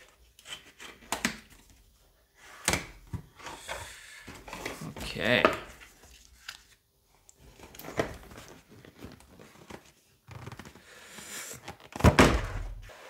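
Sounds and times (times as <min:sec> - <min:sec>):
box banging down: 0:12.0 - 0:12.8.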